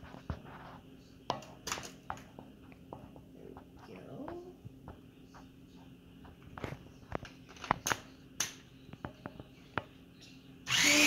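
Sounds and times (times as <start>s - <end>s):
electric mixer whirring: 10.7s - 11.0s.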